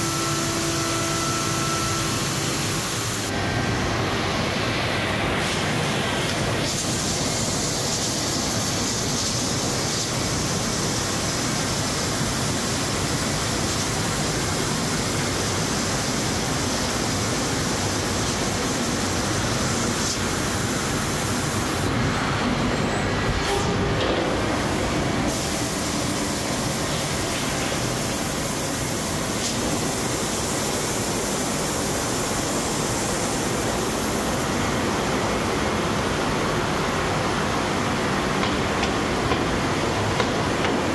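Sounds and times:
cnc machine running: 0:00.0 - 0:05.0.

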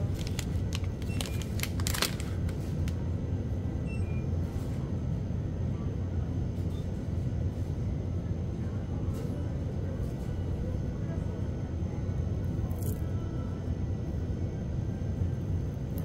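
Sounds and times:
plastic wrapper crinkling: 0:00.0 - 0:03.0
low background rumble: 0:00.0 - 0:06.5.

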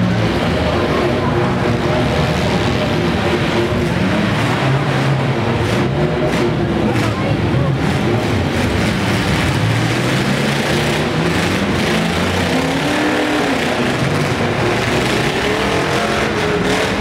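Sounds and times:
engines running and revving: 0:00.0 - 0:17.0.

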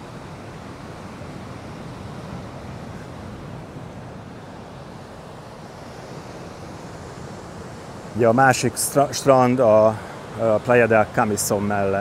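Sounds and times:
ocean surf: 0:00.0 - 0:12.0.

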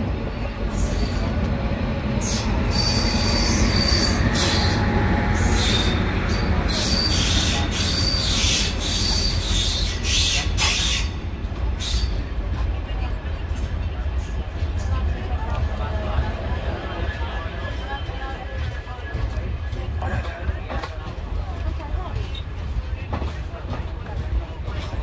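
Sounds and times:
train wheels rumbling on track: 0:00.0 - 0:25.0
metallic wheel squeal: 0:02.2 - 0:11.1.

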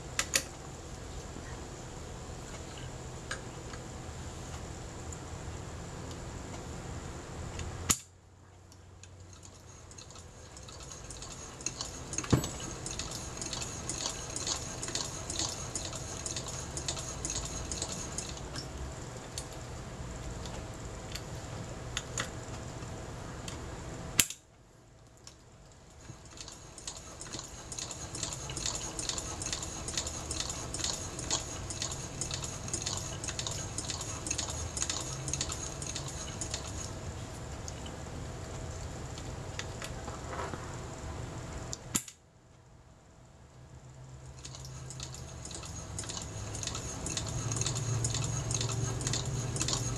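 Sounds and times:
sewing machine needle clicking: 0:09.3 - 0:18.6, 0:26.1 - 0:36.9, 0:44.4 - 0:49.9.

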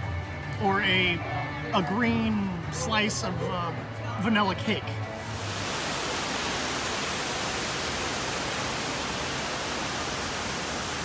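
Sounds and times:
waterfall rushing: 0:05.2 - 0:11.0.

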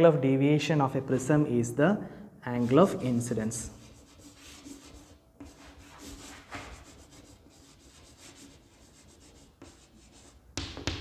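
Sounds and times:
chalk scratching on chalkboard: 0:02.6 - 0:10.4.

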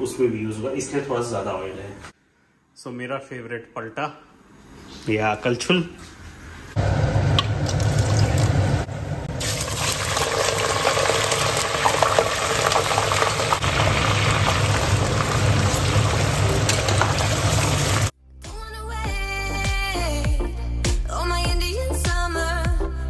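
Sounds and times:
meat sizzling in hot oil: 0:09.4 - 0:18.1.

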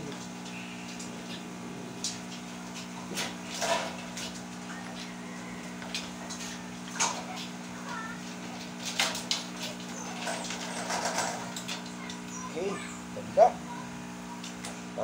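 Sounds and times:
steady low hum: 0:00.0 - 0:15.0
metal wire cage rattling: 0:02.2 - 0:04.7, 0:05.9 - 0:12.3.

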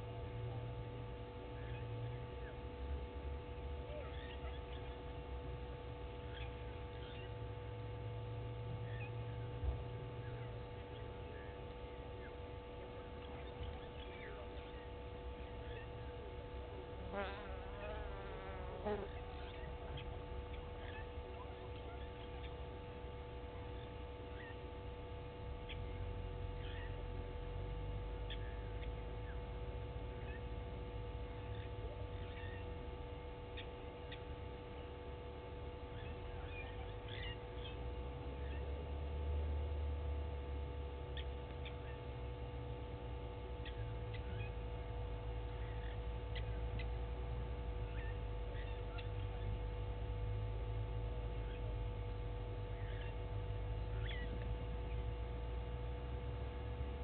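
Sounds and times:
electrical hum: 0:00.0 - 0:57.0
high bird calls: 0:03.9 - 0:05.1, 0:06.2 - 0:07.4, 0:25.6 - 0:27.1, 0:35.9 - 0:37.8, 0:47.8 - 0:49.6, 0:52.7 - 0:53.3, 0:53.9 - 0:55.0.

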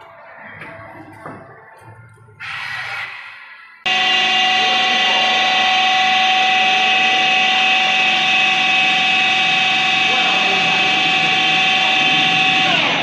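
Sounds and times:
machine hum: 0:02.3 - 0:13.0
lathe mechanical whine: 0:03.8 - 0:13.0.

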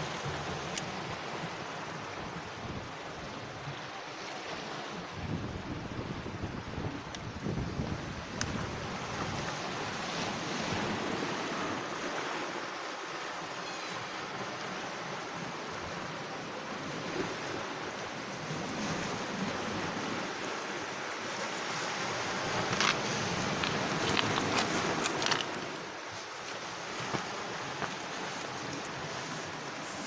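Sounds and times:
waves breaking on pebbles: 0:18.4 - 0:30.0.

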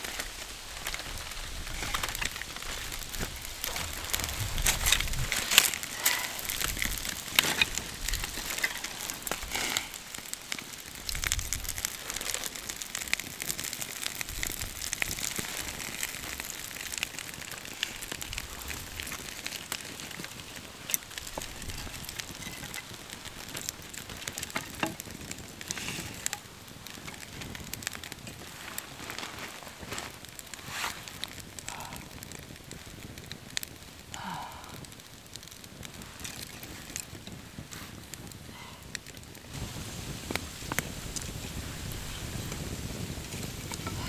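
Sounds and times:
wooden sticks clattering: 0:00.0 - 0:11.2, 0:11.8 - 0:27.4
fire crackling and popping: 0:00.0 - 0:44.0.

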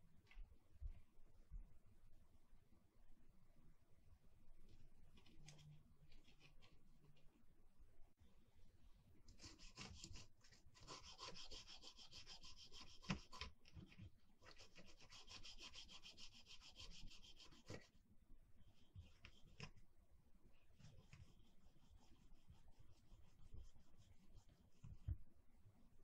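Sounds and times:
toothbrush scrubbing circuit board: 0:09.3 - 0:13.6, 0:14.4 - 0:17.9.

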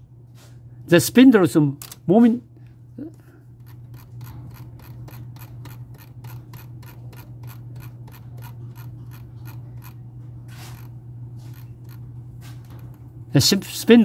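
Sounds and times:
low steady hum: 0:00.0 - 0:14.0
mouse scroll wheel clicking: 0:03.6 - 0:10.0.

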